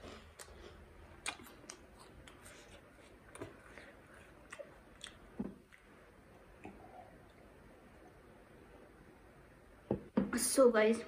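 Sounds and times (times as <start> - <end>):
wet chewing with mouth clicks: 0.0 - 7.5.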